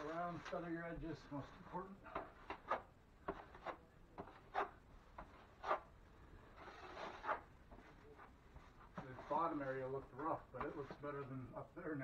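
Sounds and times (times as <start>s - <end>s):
damp sponge rubbing joint compound: 6.6s - 11.1s.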